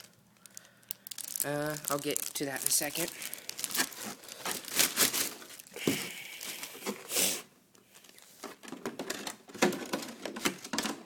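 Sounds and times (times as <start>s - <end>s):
plastic bag crinkling: 0.0s - 7.0s.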